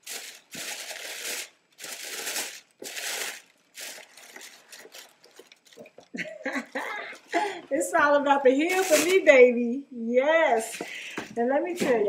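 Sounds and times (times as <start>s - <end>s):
tissue paper crinkling: 0.0s - 7.5s, 8.6s - 9.3s.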